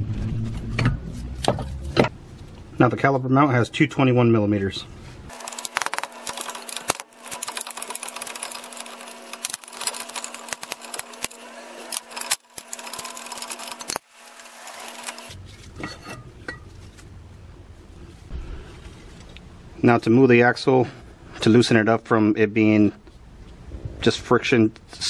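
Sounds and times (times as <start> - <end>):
power tool rattling: 5.3 - 15.3.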